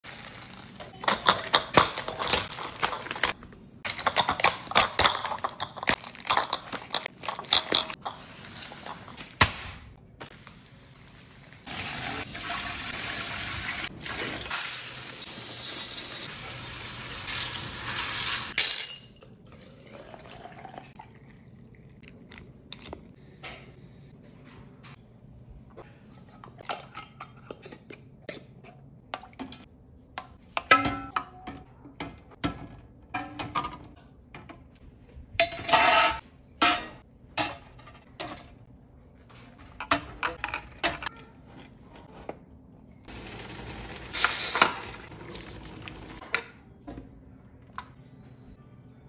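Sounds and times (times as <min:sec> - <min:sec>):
glass jars clattering: 0:03.9 - 0:08.2
water pouring into metal pot: 0:19.6 - 0:21.2.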